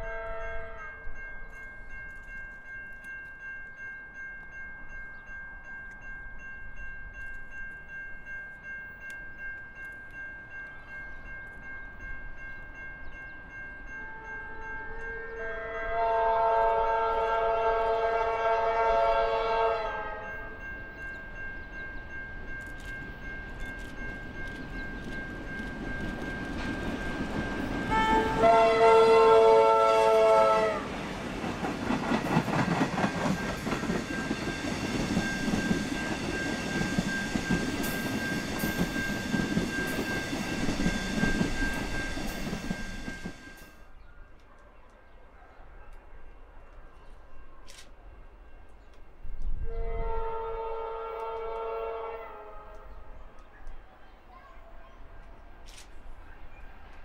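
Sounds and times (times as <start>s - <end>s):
locomotive air horn: 0.0s - 1.0s, 14.1s - 20.6s, 27.9s - 31.0s, 49.6s - 53.0s
train rumbling and clacking over rails: 19.2s - 43.8s.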